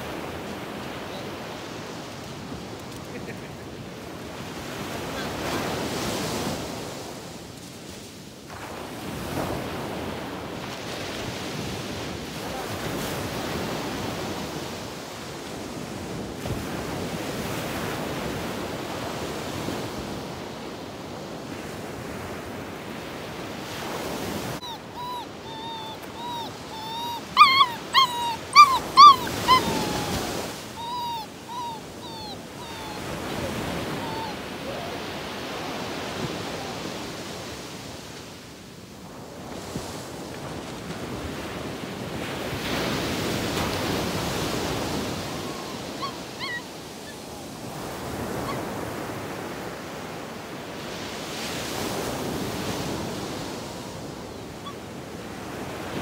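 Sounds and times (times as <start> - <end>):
dog whimpering and yelping: 24.6 - 37.0, 43.8 - 48.8, 54.6 - 54.8.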